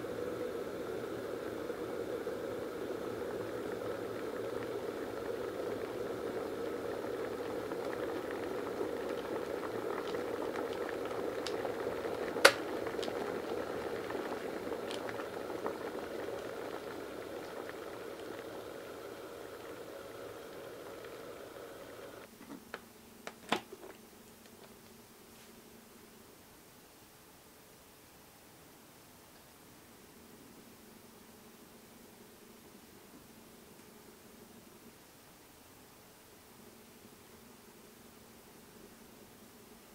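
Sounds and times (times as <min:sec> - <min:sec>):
electric kettle boiling: 0:00.0 - 0:25.0.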